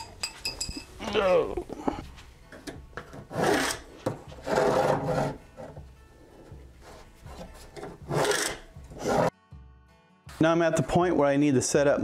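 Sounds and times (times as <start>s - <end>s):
pencil scratching along metal edge: 3.2s - 5.8s, 6.8s - 9.3s.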